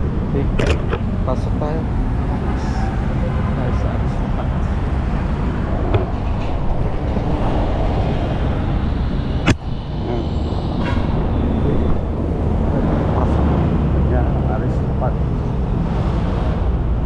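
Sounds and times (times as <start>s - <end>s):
highway traffic rumble: 0.0s - 17.0s.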